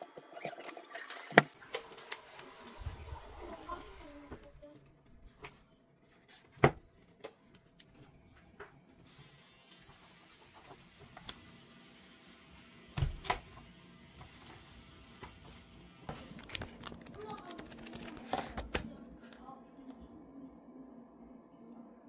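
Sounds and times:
book pages flipping: 16.1 - 18.8.

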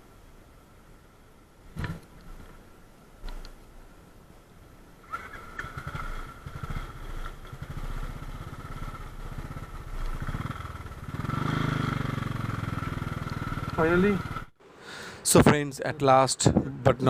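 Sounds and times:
motorcycle engine running: 5.2 - 14.5.

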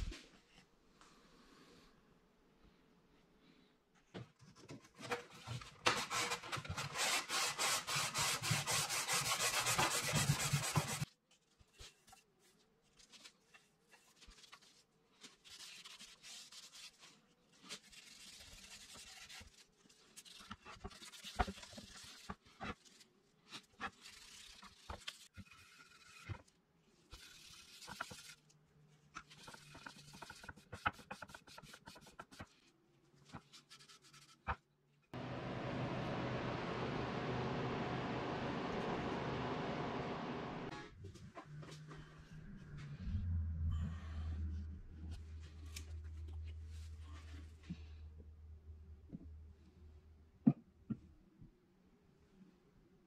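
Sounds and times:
hand sanding wood: 6.1 - 11.0.

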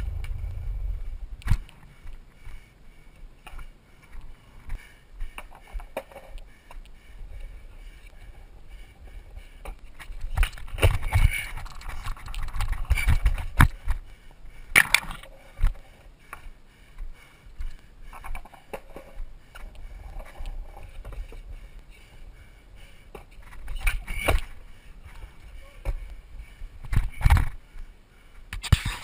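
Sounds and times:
longboard wheels rumbling on concrete: 0.0 - 1.4.

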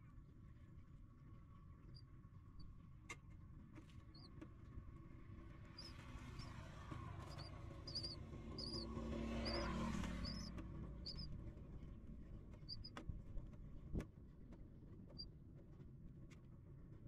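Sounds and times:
nestling birds peeping: 4.0 - 4.4, 5.5 - 13.0
low rumble: 5.7 - 13.9.

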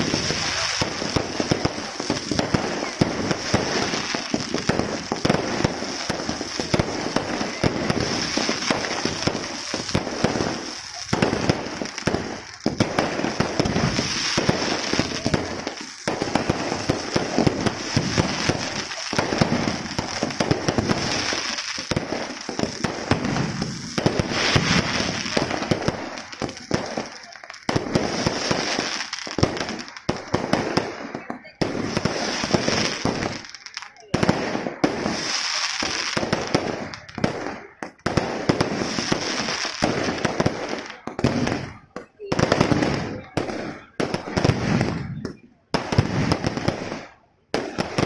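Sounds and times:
fireworks bangs and crackling: 0.0 - 48.0.

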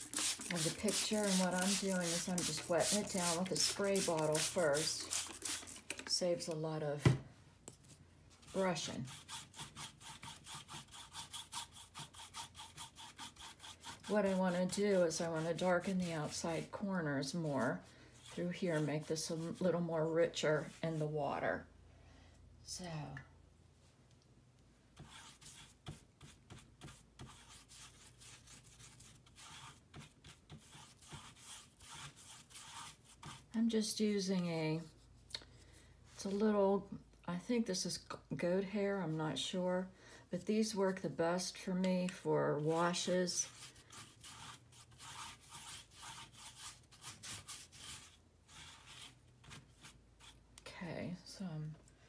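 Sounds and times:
brush swishing on damp paper: 0.0 - 5.9, 7.8 - 19.8, 25.0 - 33.6, 42.8 - 50.4.

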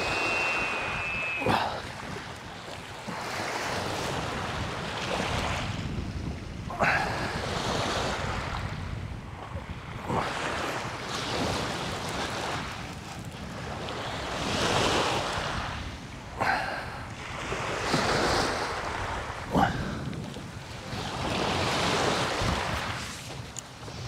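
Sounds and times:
wind buffeting microphone: 0.0 - 24.0.

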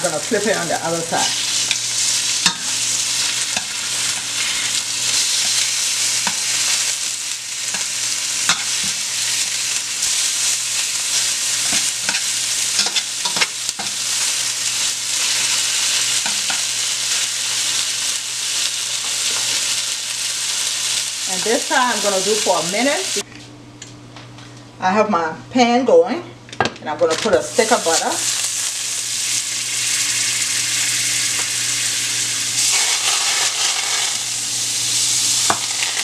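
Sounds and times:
steaks sizzling in oil: 0.0 - 23.2, 27.4 - 36.0.

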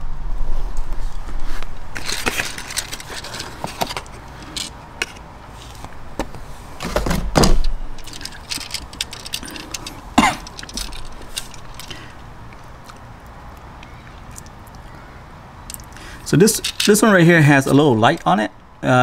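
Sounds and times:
scattered clicks and rustles: 0.7 - 14.8, 15.7 - 18.3
plastic packaging crackling: 1.9 - 4.7.

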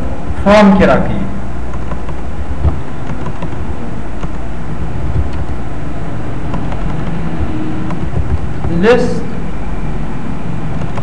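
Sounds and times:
low rumbling background noise: 0.0 - 11.0
keyboard keys clicking: 1.7 - 4.4, 5.1 - 5.6, 6.5 - 8.8, 10.7 - 11.0.

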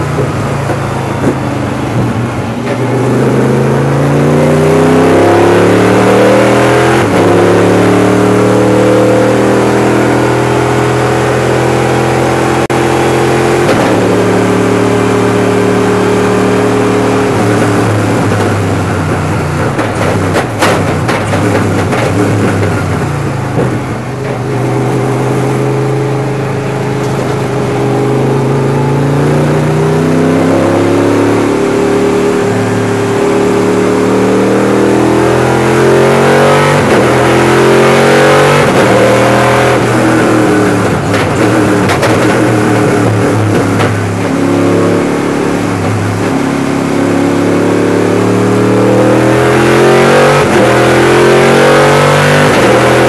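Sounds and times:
race car engine accelerating: 0.0 - 53.0
engine cracks on deceleration: 17.5 - 24.5, 39.8 - 44.4.

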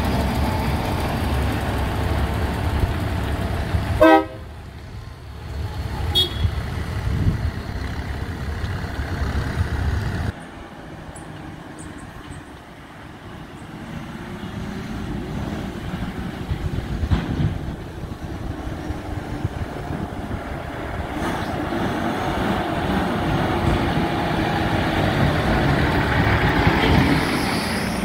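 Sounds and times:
diesel truck engine pulling away: 0.0 - 10.4, 13.4 - 28.0
truck horn toot: 4.0 - 4.5, 6.0 - 6.6.

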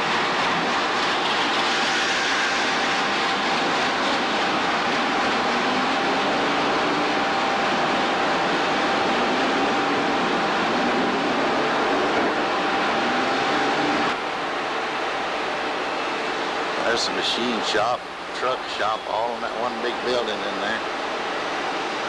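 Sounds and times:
loud steady rushing hiss: 0.0 - 22.0
thin steady whine: 0.0 - 22.0.

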